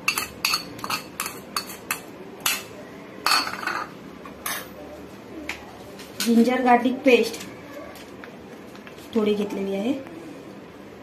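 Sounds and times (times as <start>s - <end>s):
spoon clinking on ceramic bowl: 0.0s - 2.6s.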